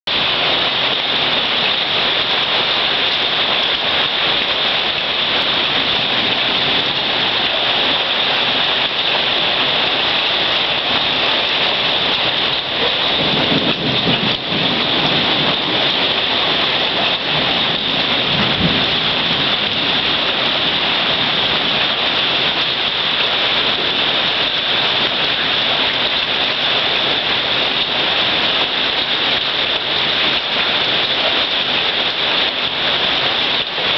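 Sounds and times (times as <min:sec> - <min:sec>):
hail and heavy rain pelting: 0:00.1 - 0:33.9
low rumbles of thunder: 0:10.8 - 0:22.6.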